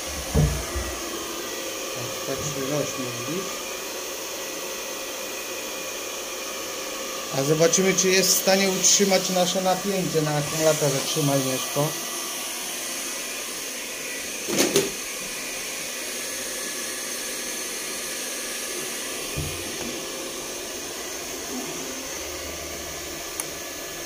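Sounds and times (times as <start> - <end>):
heat gun fan blowing: 0.0 - 24.0
dull knock: 0.2 - 1.0, 19.3 - 19.7.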